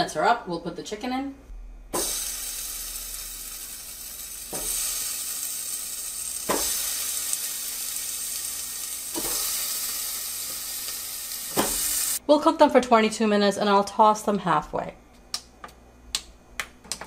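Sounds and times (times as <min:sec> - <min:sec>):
chicken wings sizzling: 0:02.0 - 0:12.2.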